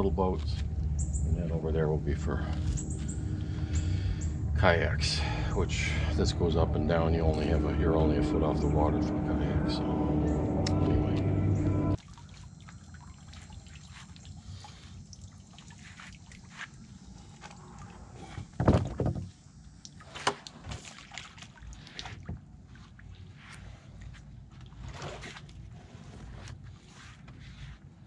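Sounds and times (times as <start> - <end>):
water sloshing faintly: 12.0 - 18.2, 19.7 - 27.6.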